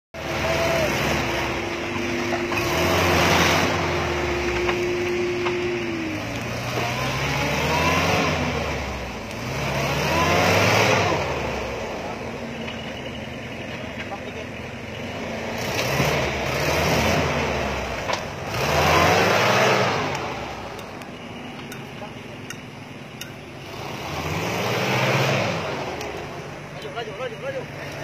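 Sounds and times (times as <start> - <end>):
engine revving hard: 0.2 - 12.2, 15.0 - 20.7, 23.6 - 26.3.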